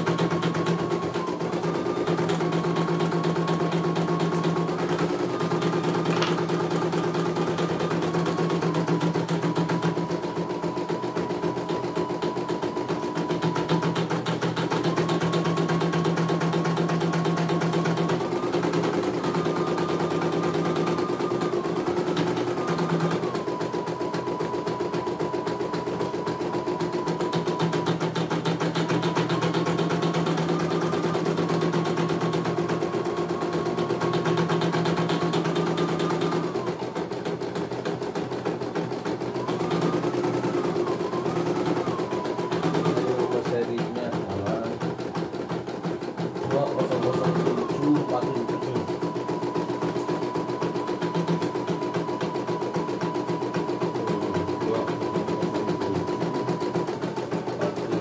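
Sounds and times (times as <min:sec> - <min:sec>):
embroidery machine stitching: 0:00.0 - 0:58.0
motor hum: 0:00.0 - 0:58.0.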